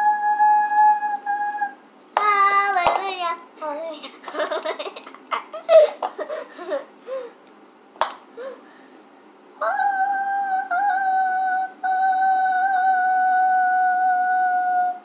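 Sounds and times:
girl singing high note: 0.0 - 4.0.

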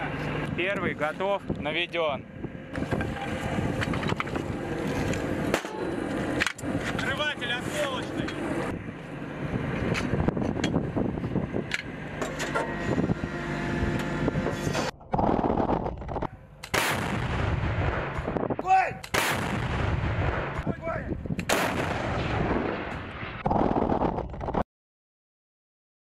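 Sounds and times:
vehicle engine running: 0.0 - 16.6
heavy cannon shots: 16.6 - 24.2.

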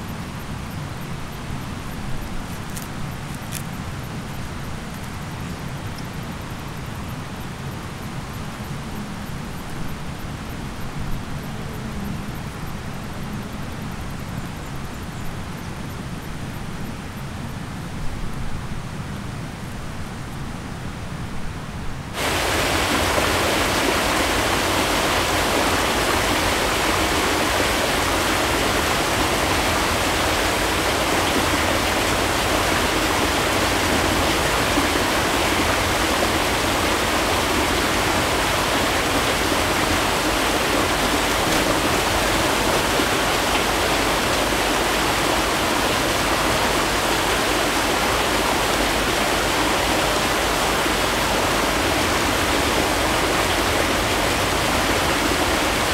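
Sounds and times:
waterfall pouring into pool: 22.2 - 55.9.

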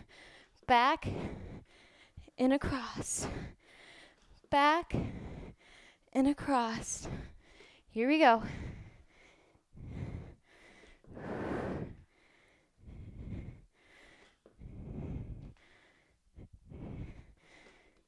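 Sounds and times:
woman breathing heavily: 0.0 - 18.0.

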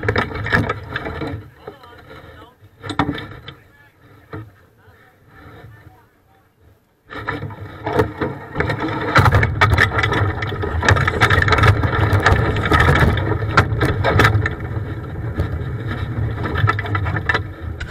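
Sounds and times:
knocking and rattling: 7.1 - 17.9.

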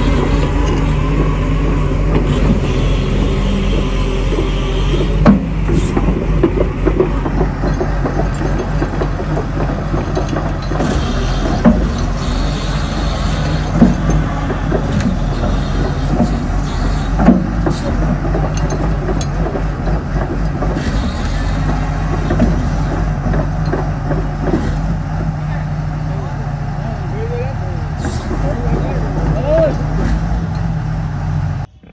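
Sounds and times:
excavator diesel engine running: 0.0 - 31.9
sharp knocks: 3.8 - 25.4.

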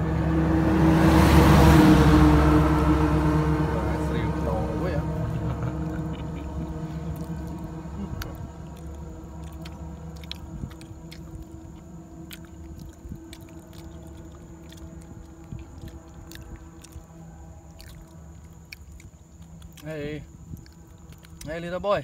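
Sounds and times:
steady low hum: 0.0 - 22.0
monkey chewing wet smacking: 5.0 - 22.0.

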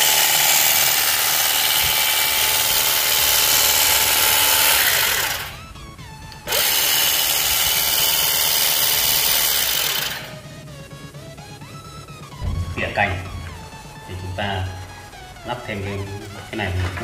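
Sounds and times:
cordless grass shear buzzing: 0.0 - 11.0.

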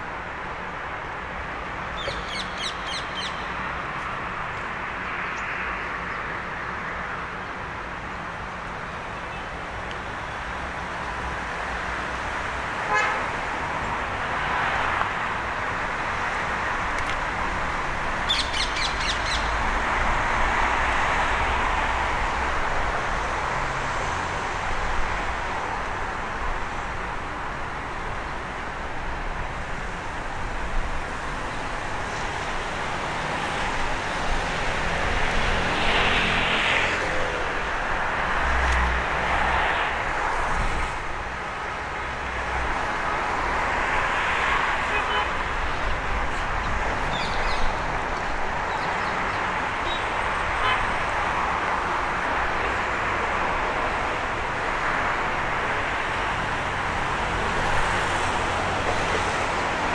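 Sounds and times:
city road traffic: 0.0 - 59.9
car horn toot: 12.9 - 13.3
high bird trills: 18.3 - 19.5.

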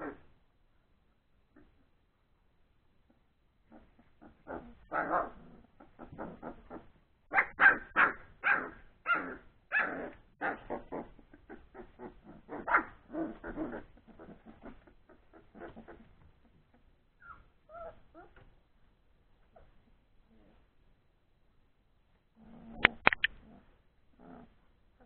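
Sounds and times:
puppies barking: 4.3 - 16.0.

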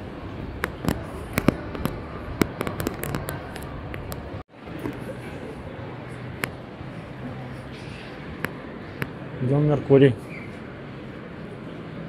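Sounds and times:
large hall background noise: 0.0 - 12.0
handling clicks and crackles: 0.6 - 5.0.

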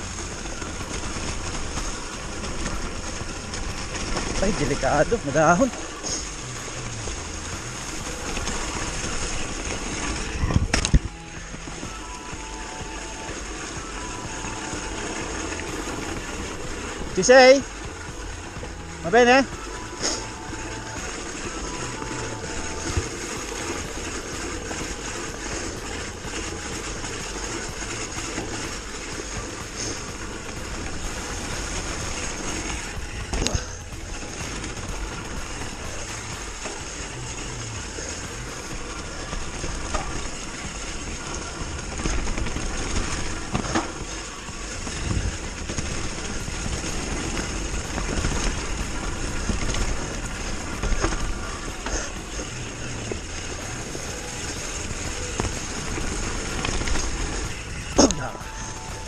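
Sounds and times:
bike knocking and rattling: 0.0 - 59.0
bike tyres rolling on dirt: 0.0 - 59.0.

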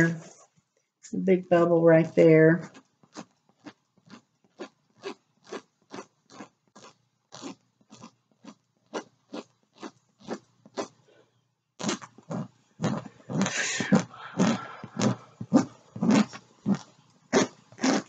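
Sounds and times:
scratchy rubbing strokes: 11.8 - 18.0.

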